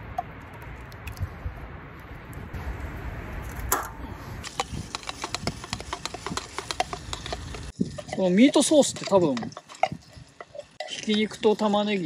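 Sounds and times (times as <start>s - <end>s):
can clicking and tapping on pot: 4.5s - 8.2s.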